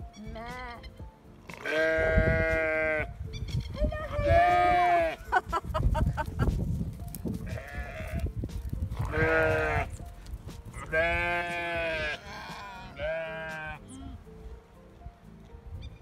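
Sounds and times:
sheep bleating: 1.5 - 3.1, 4.1 - 5.3, 7.4 - 8.2, 9.0 - 10.0, 10.8 - 13.9.

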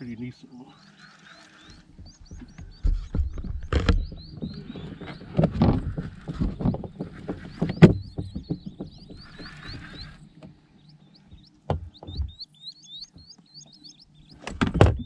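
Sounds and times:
bird chirping: 0.0 - 15.0
knocks and clicks: 2.0 - 10.1.

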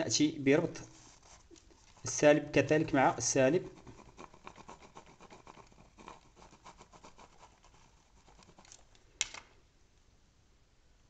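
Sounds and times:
pen scratching and tapping on paper: 1.2 - 8.9.

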